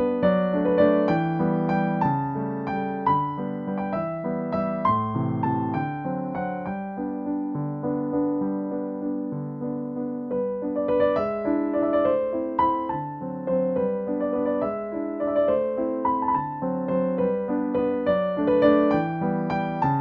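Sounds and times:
keyboard melody: 0.0s - 20.0s.

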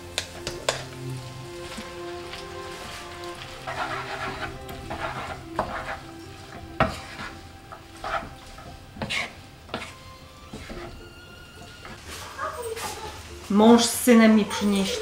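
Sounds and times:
food sizzling in a frying pan: 0.0s - 15.0s
soft background music: 0.0s - 15.0s
utensil scraping a pan: 0.2s - 13.2s.

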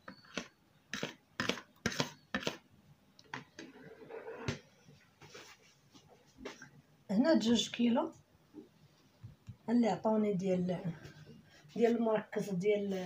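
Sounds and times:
utensil scraping plastic bowl: 0.0s - 2.6s.

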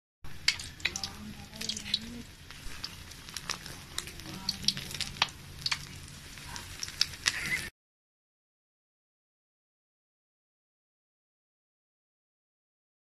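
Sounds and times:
food deep-frying in hot oil: 0.3s - 7.7s.

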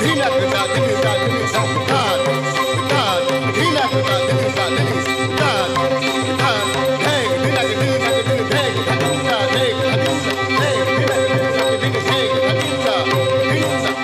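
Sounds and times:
drum strokes in steady rhythm: 0.0s - 14.0s.

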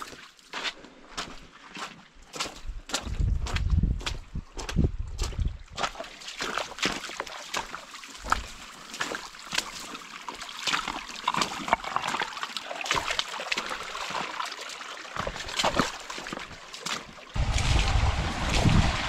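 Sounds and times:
footsteps on rocks and gravel: 0.0s - 14.4s, 15.1s - 18.0s
creek trickling: 5.1s - 19.0s.

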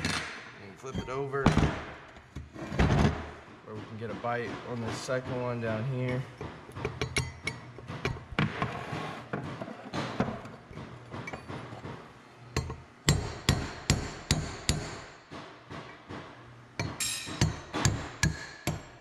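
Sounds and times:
hammer striking steel punch: 12.6s - 15.5s, 16.8s - 19.0s.

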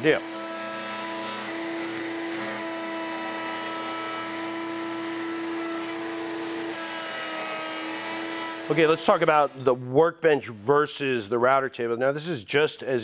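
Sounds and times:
router whining: 0.0s - 9.8s.

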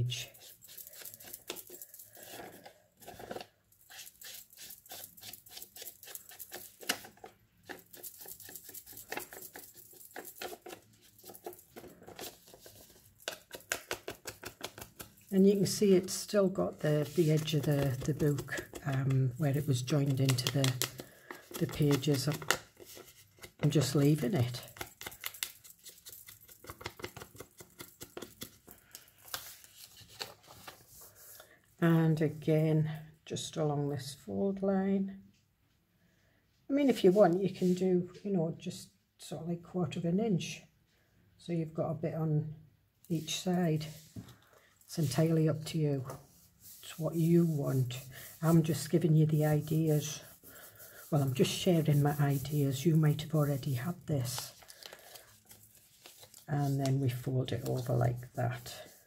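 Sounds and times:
light paper rustling: 0.2s - 31.4s, 43.2s - 59.0s.

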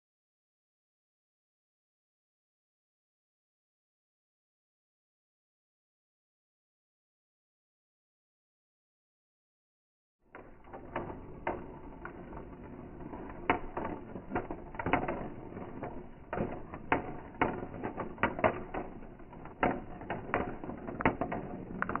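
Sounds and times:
marbles rolling on plastic track: 10.4s - 22.0s.

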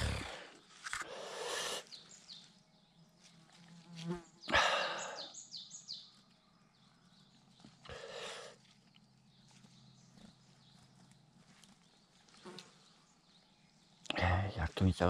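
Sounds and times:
fly buzzing: 12.3s - 12.8s.

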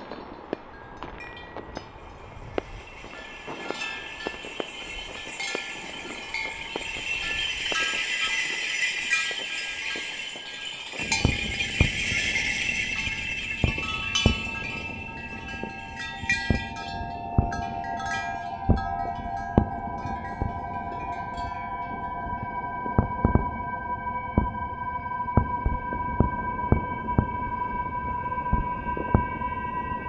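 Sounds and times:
fireworks crackling: 0.0s - 23.7s
fireworks bangs: 0.0s - 29.8s
ringing tones: 0.0s - 30.0s.

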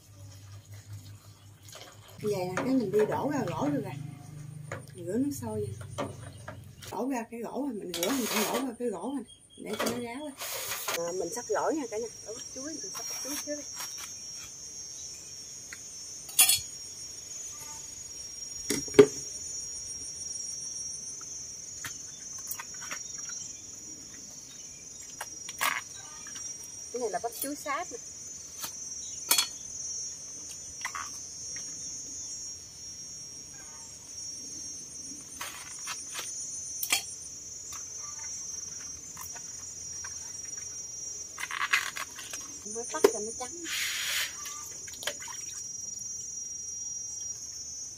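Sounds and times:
insect chirring: 0.0s - 47.9s.

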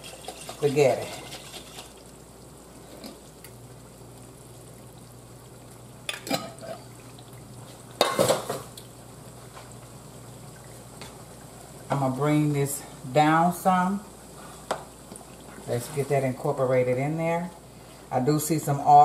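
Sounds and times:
sauce sizzling in a skillet: 0.0s - 18.9s.

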